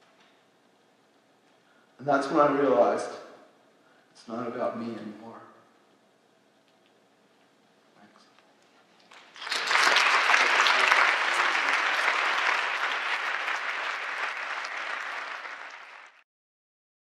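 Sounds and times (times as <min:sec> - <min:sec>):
audience applause: 0:09.1 - 0:16.2.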